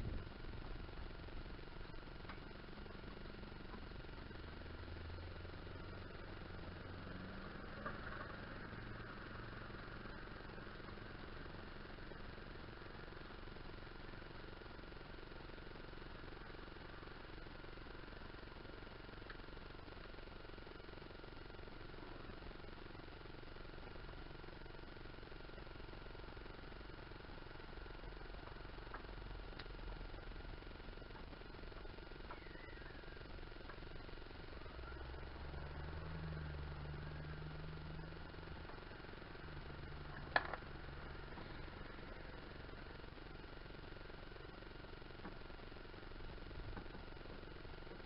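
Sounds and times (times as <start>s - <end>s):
faint mechanical hum: 0.0s - 48.0s
faint clicks: 27.4s - 30.3s.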